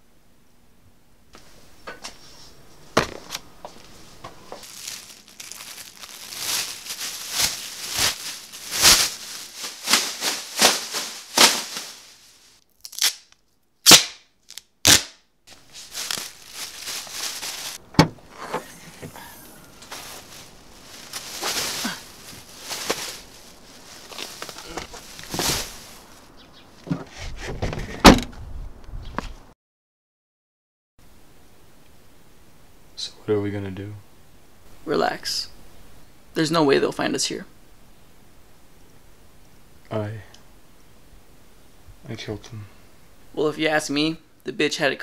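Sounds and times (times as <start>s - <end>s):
rustling and handling noises: 1.4s - 13.7s, 15.5s - 28.0s.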